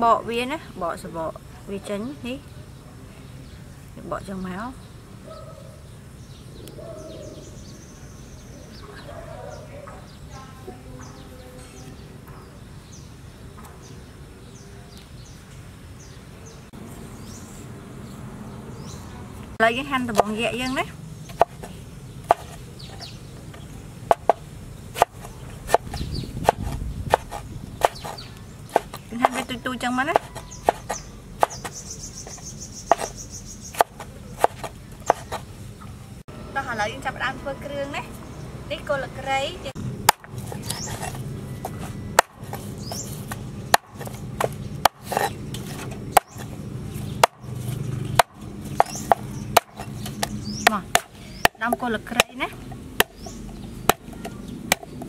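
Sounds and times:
knife chopping on wooden board: 0:21.3 - 0:22.6, 0:24.1 - 0:24.4, 0:25.0 - 0:29.5, 0:30.1 - 0:31.8, 0:32.9 - 0:33.2, 0:33.8 - 0:35.5, 0:40.1 - 0:46.5, 0:47.2 - 0:52.3.

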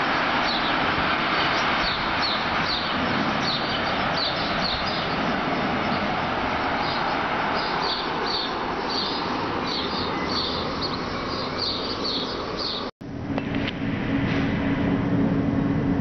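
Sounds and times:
train wheels rumbling on rails: 0:00.0 - 0:16.0
steady low hum: 0:12.4 - 0:16.0.

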